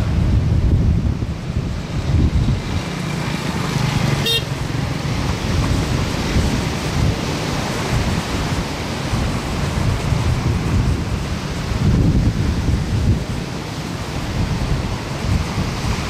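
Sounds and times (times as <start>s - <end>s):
surf breaking on beach: 0.0s - 16.0s
wind rumbling on microphone: 0.0s - 16.0s.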